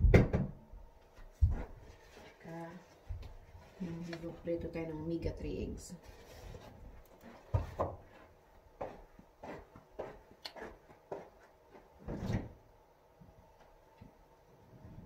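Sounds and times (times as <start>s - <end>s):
footsteps: 1.0s - 4.6s, 6.0s - 12.5s.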